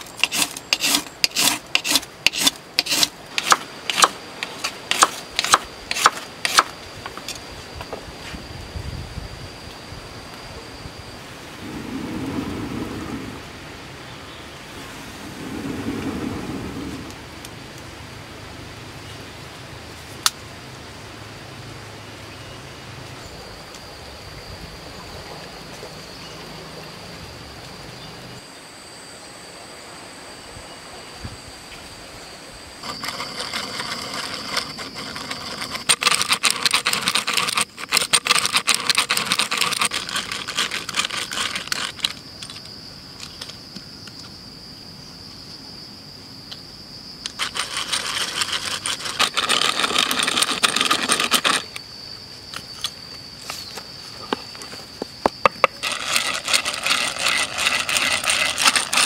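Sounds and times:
hand drill clicking whir: 0.0 - 7.4, 32.8 - 43.5, 47.2 - 51.9, 55.4 - 59.0
high-pitched whine: 22.0 - 38.2.

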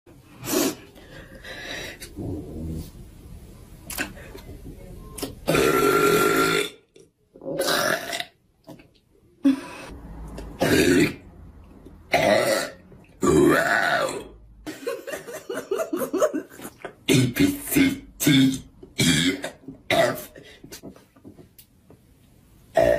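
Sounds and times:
woman burping loudly: 5.4 - 8.4, 10.6 - 11.2, 12.1 - 14.4, 16.8 - 20.4.

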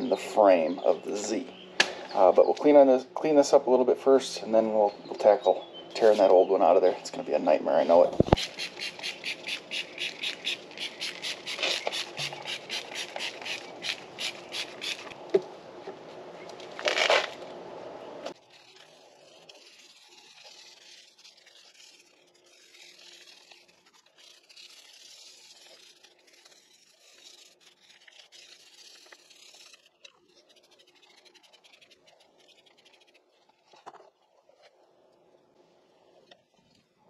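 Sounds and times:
stiff brush scrubbing: 6.0 - 15.2, 18.3 - 34.8.

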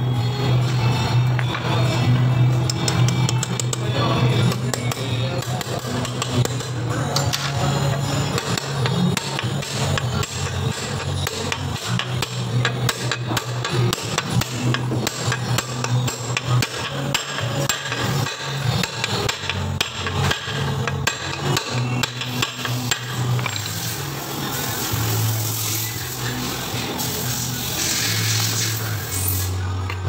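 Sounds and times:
hammer striking metal: 2.6 - 24.0.

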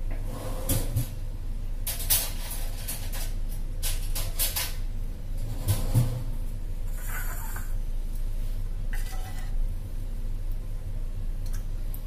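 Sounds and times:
low steady hum: 0.0 - 12.0
kitchen utensils clattering: 1.9 - 6.4, 8.9 - 9.6.

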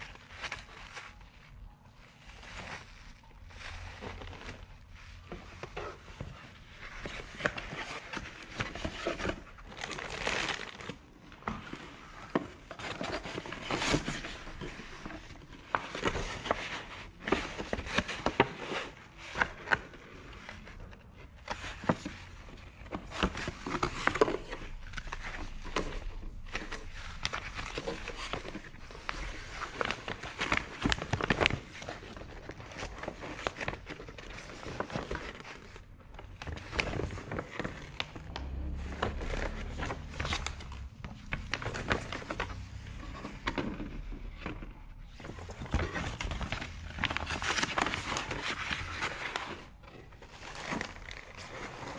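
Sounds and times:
paper and plastic rustling: 0.0 - 51.9.

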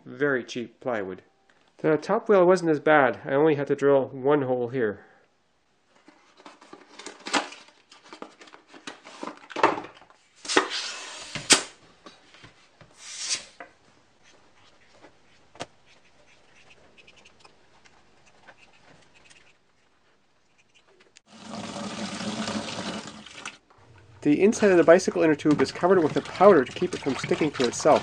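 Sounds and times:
rubber tube scraping: 13.0 - 13.6.

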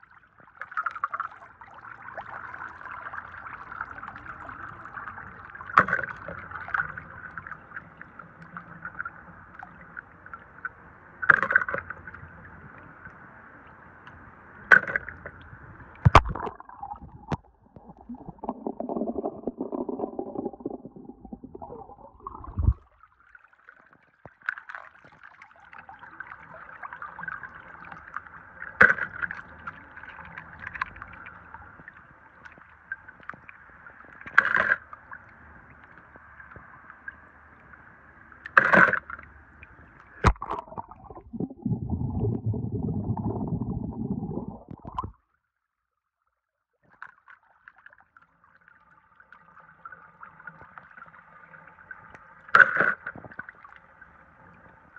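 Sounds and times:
water sloshing and gurgling: 0.0 - 12.8, 14.6 - 45.3, 46.8 - 54.9
water rushing: 16.0 - 23.0, 40.2 - 45.1.

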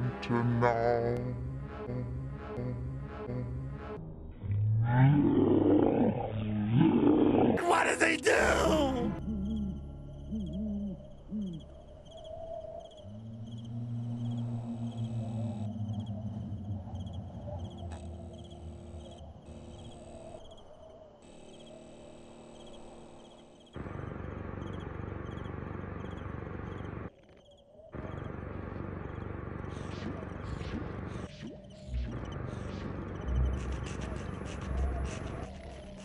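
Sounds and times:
low droning hum: 0.0 - 5.0, 9.0 - 20.5
crickets chirping: 8.8 - 23.8.

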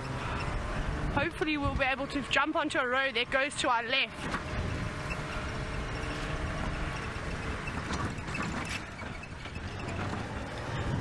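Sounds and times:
vehicle engine driving off-road: 0.0 - 11.0
vehicle knocks and rattles: 4.1 - 11.0.

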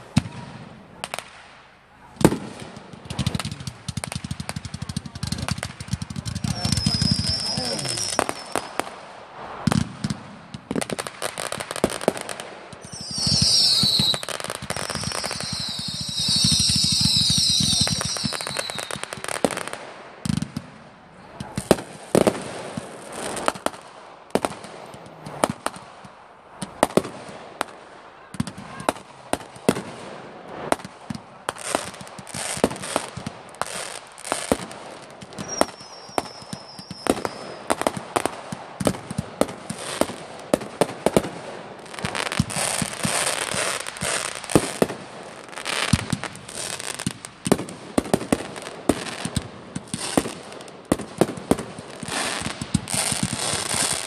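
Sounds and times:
fireworks bangs and pops: 0.0 - 54.0
faint high whistle: 6.5 - 8.7, 12.8 - 19.1, 35.4 - 37.7.

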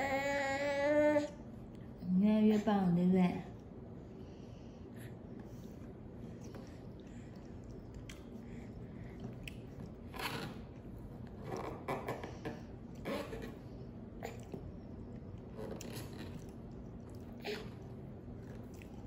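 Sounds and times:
baby chewing and smacking: 6.3 - 10.9, 14.2 - 19.0.

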